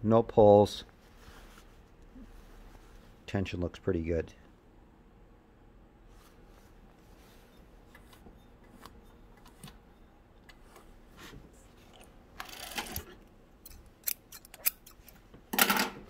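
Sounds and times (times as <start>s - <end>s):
fabric and thread rustling: 0.9s - 3.2s, 6.1s - 10.0s.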